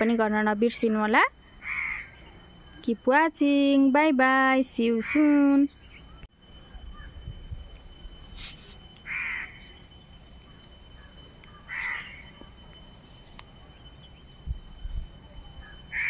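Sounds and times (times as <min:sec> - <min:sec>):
crow cawing: 0:01.6 - 0:02.2, 0:09.0 - 0:09.7, 0:11.5 - 0:12.3.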